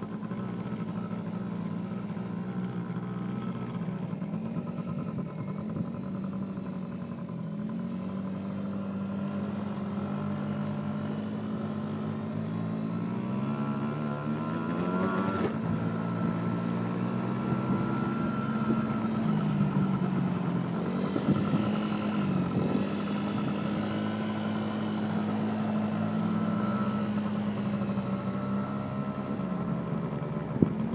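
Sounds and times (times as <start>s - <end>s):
atv engine revving: 0.0s - 30.9s.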